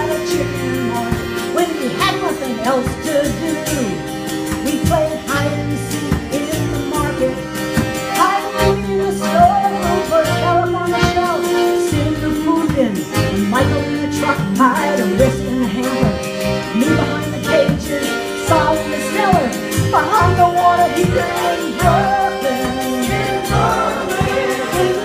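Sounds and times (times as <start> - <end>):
woman singing: 0.0 - 4.0, 4.6 - 7.4, 8.2 - 23.5
mountain dulcimer strummed: 13.4 - 25.0.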